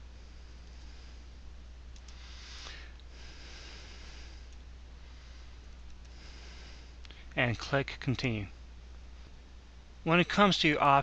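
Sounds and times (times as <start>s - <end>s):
soft breaths: 0.0s - 7.4s.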